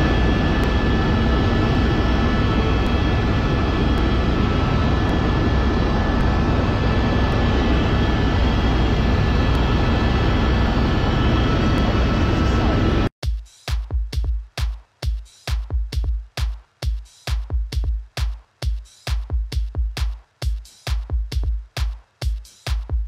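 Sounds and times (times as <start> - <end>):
helicopter engine and rotors droning: 0.0 - 13.1
thin steady whines: 0.0 - 13.1.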